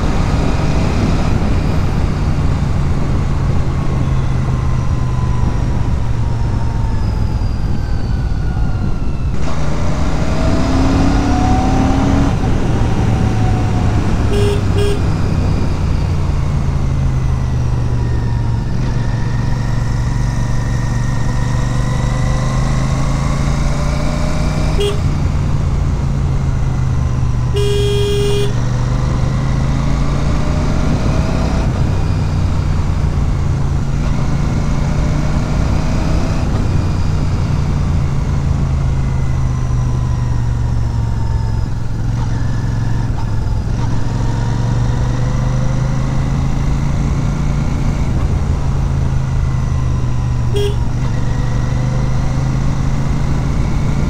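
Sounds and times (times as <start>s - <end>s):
motorcycle engine cruising: 0.0s - 54.0s
horn toots: 14.2s - 15.3s, 24.7s - 25.2s, 27.5s - 28.6s, 50.5s - 51.0s.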